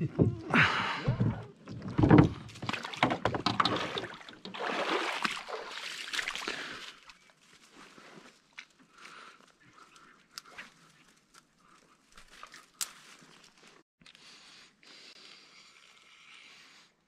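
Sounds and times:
rustling through dry branches: 6.0 - 13.8.

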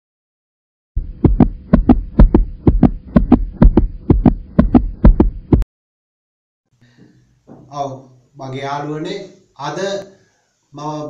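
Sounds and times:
paired low thumps: 1.0 - 5.6.

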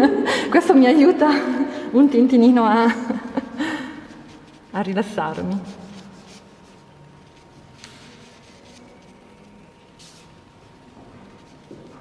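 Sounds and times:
pencil scratching on paper: 4.0 - 10.3.

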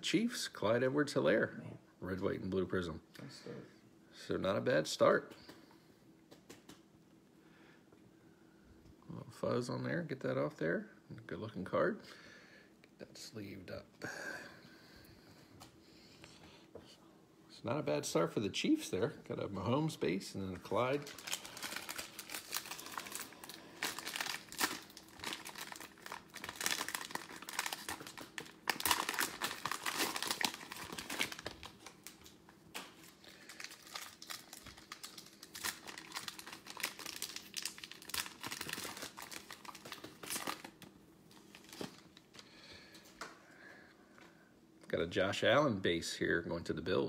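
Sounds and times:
plastic wrapper crinkling: 20.5 - 42.5.

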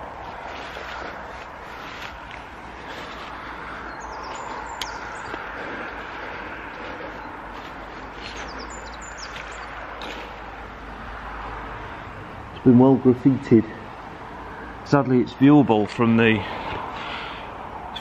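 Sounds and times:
footsteps through long grass: 0.0 - 10.7
road traffic hum: 0.0 - 18.0
bird chirps: 3.7 - 6.0, 8.0 - 10.2.

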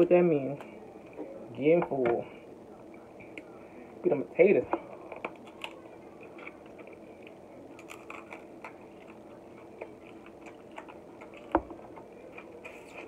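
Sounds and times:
chewing crab meat: 5.2 - 13.0.

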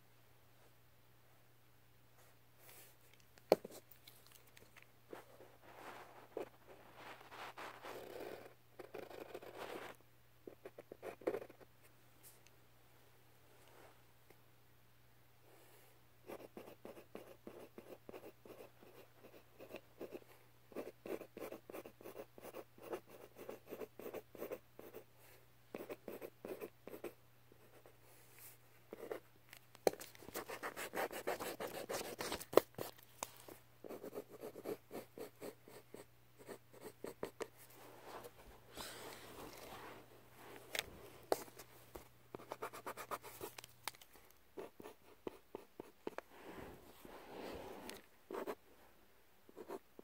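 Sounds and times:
faint low hum: 0.0 - 50.0
pen scratching on paper: 7.7 - 9.9, 10.5 - 11.6, 16.3 - 20.2, 20.8 - 25.0, 25.8 - 27.1, 30.2 - 32.9, 42.4 - 43.5, 48.3 - 48.6.

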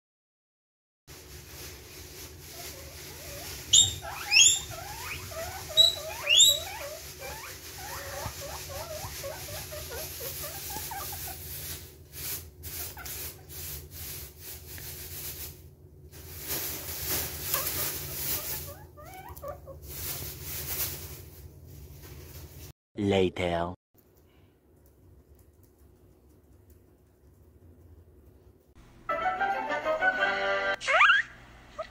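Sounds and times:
guinea pigs squealing: 2.4 - 13.8, 16.8 - 20.3, 30.7 - 31.9.

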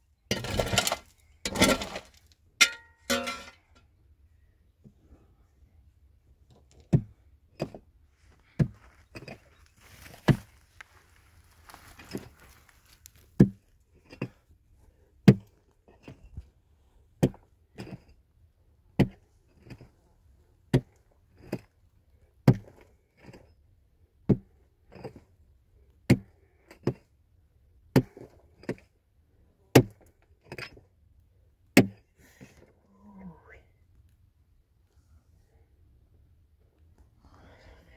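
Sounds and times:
rustling scraping: 8.8 - 13.4.

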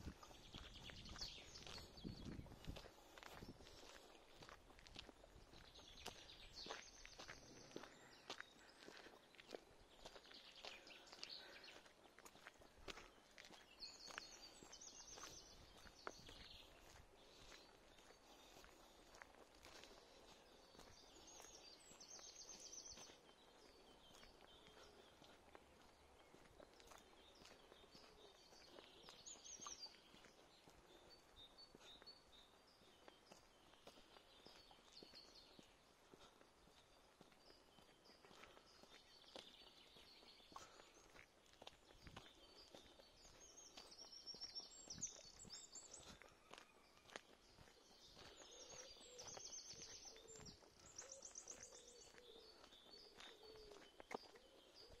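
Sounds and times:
footsteps on a trail: 0.0 - 55.0
songbirds singing: 0.0 - 55.0.

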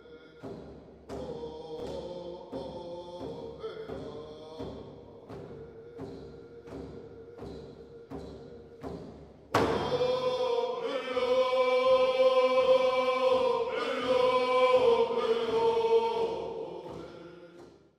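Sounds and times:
loud chanted singing: 0.0 - 17.8
steady drum beat: 11.2 - 17.9.

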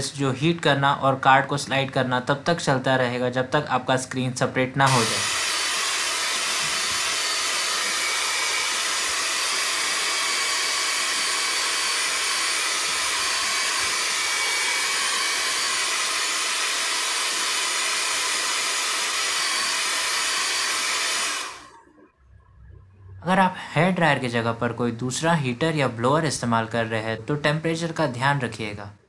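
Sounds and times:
hair dryer blowing air: 4.9 - 21.8.

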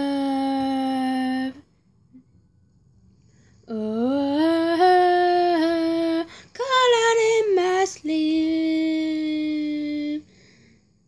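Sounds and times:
woman singing a cappella: 0.0 - 1.7, 3.6 - 10.4.

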